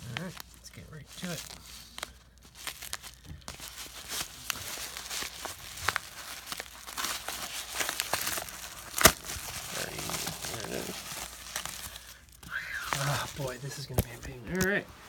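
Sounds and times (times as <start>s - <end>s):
paper mailer crinkling: 0.0s - 15.0s
sharp paper snap: 7.7s - 9.5s.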